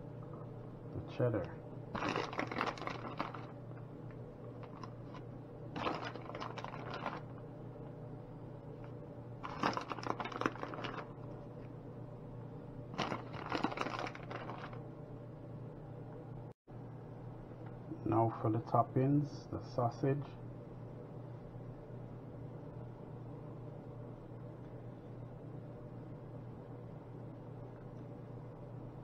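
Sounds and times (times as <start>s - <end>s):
steady low hum: 0.0s - 29.0s
plastic bag crinkling: 1.9s - 3.6s, 4.6s - 5.2s, 5.8s - 7.4s, 9.4s - 11.4s, 12.9s - 14.8s.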